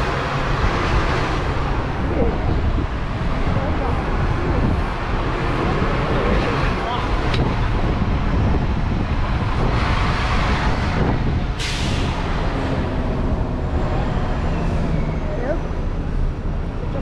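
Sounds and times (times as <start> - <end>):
bus engine running: 0.0 - 17.0
road traffic: 0.0 - 17.0
wind rumble on microphone: 0.0 - 17.0
air brakes hissing: 11.6 - 12.3.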